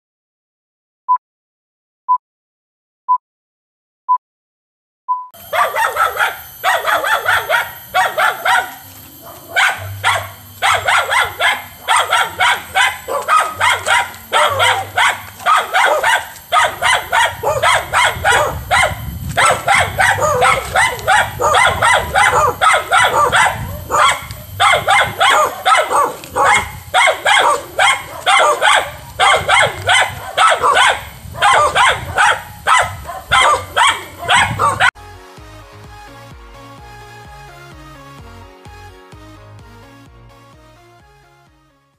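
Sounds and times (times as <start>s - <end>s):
dog barking rapidly: 5.4s - 35.0s.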